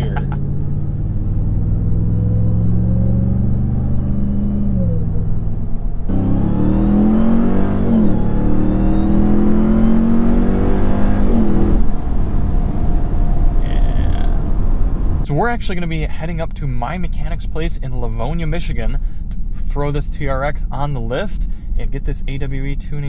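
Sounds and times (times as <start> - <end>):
truck engine revving: 0.0 - 12.8.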